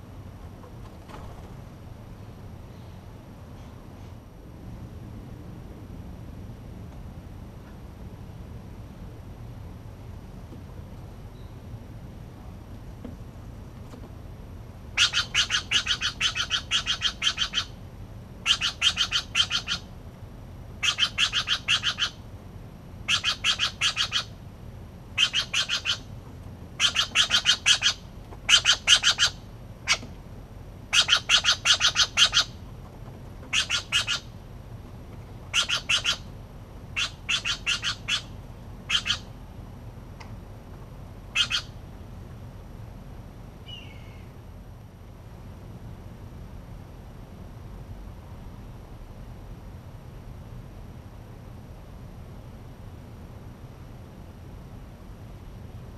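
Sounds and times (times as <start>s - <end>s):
jays calling harshly: 15.0s - 17.8s, 18.4s - 19.9s, 20.8s - 22.2s, 23.1s - 24.3s, 25.2s - 26.1s, 26.8s - 30.0s, 30.9s - 32.6s, 33.5s - 34.3s, 35.5s - 36.3s, 37.0s - 39.3s, 41.3s - 41.7s.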